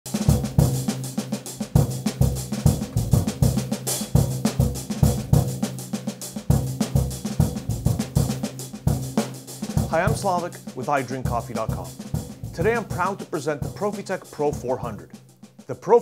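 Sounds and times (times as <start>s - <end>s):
drum kit beat: 0.1s - 16.0s
bass line: 2.7s - 3.6s, 9.7s - 15.1s.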